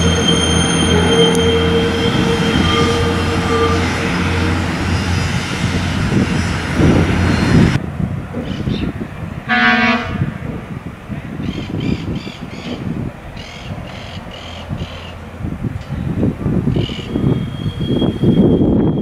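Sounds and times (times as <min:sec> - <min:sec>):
train horn blast: 0:00.0 - 0:06.2, 0:09.5 - 0:10.5
railcar running past: 0:00.0 - 0:19.0.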